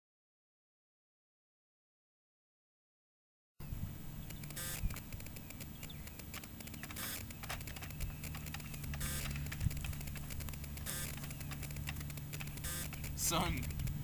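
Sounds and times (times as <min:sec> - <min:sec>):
steady low hum: 0:03.6 - 0:14.0
computer keyboard clicking: 0:04.2 - 0:14.0.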